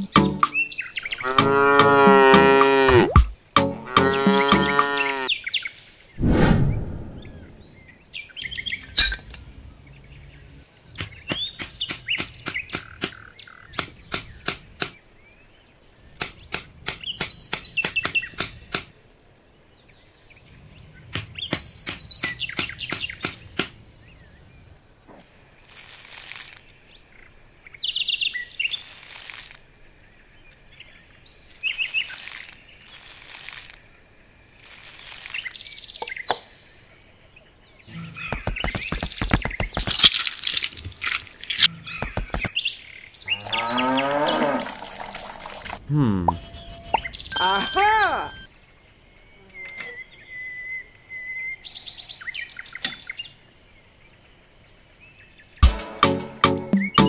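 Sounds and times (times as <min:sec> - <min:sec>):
birds chirping: 0:00.0 - 0:57.0
wooden posts clicking and tapping: 0:11.0 - 0:15.0, 0:38.2 - 0:42.6
rustling bursts: 0:25.6 - 0:26.6, 0:28.7 - 0:29.6, 0:31.7 - 0:33.8, 0:34.5 - 0:35.6, 0:38.4 - 0:42.4.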